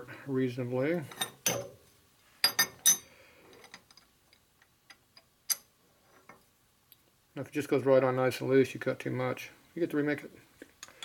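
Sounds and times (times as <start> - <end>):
metal-on-metal clinks: 1.1 - 1.8, 2.4 - 3.1.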